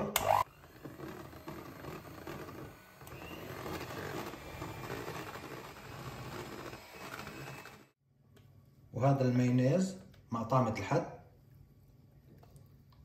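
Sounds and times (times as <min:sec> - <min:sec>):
electric hand mixer whisking: 0:00.0 - 0:08.0.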